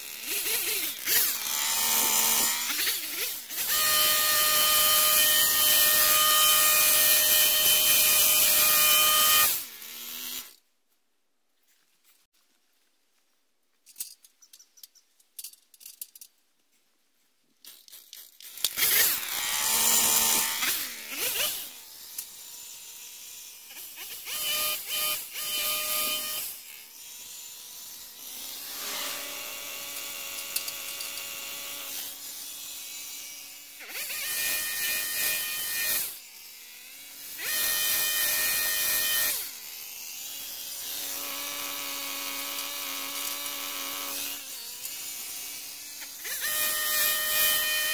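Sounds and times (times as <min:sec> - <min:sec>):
hedge trimmer idling and revving: 0:00.0 - 0:10.6, 0:18.5 - 0:47.9.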